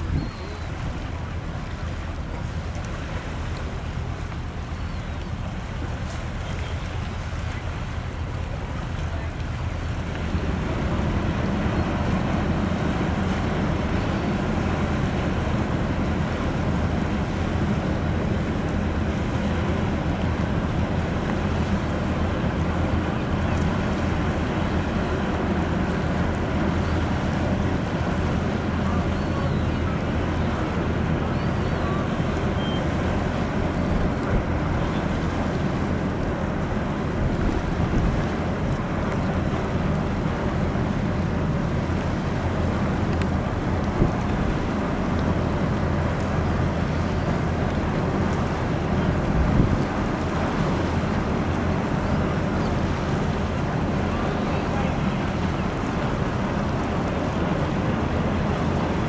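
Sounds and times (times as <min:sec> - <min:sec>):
wind noise on microphone: 0:00.0 - 0:01.6, 0:43.3 - 0:46.8, 0:48.8 - 0:54.0
water washing: 0:00.0 - 0:59.0.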